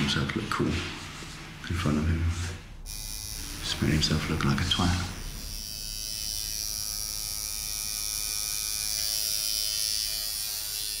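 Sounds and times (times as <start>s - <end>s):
tattoo machine buzzing: 2.8s - 11.0s.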